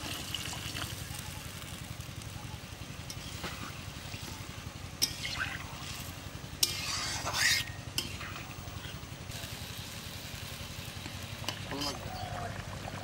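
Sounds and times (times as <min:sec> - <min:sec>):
ladle scraping pan: 0:06.6 - 0:09.0.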